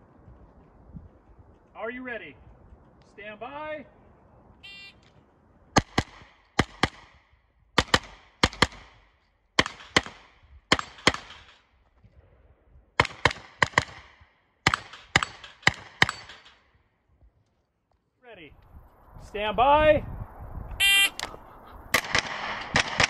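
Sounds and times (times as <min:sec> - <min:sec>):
carbine gunshots with echo: 0:05.7 - 0:11.7, 0:13.0 - 0:16.8, 0:20.8 - 0:23.0.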